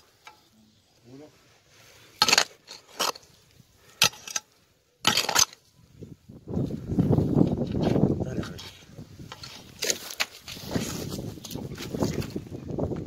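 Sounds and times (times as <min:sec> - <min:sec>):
hoe striking stony soil: 0:02.2 - 0:05.6.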